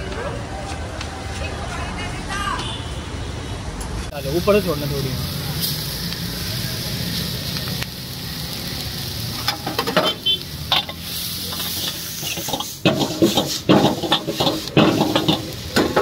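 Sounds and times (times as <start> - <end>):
noodles sizzling in a wok: 4.2 - 16.0
ladle scraping and clanking on wok: 9.3 - 16.0.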